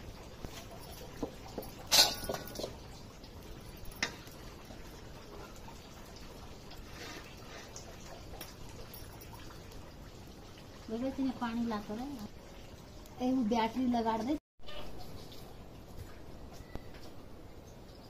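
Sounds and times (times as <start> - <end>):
steel pan clanking on stove: 1.6 - 2.9.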